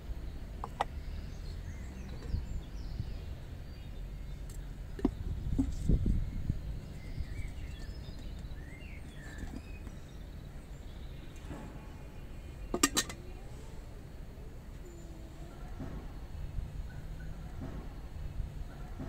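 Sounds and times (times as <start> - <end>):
faint bird chirps: 0.7 - 19.0
metal pot clink: 12.7 - 13.2.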